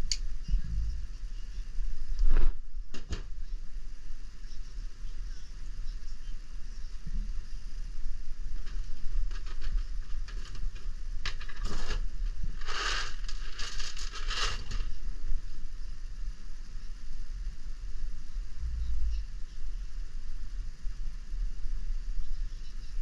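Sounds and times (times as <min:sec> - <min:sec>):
steady low rumble: 0:00.0 - 0:23.0
rustling and crinkling: 0:00.5 - 0:03.6, 0:08.2 - 0:15.6.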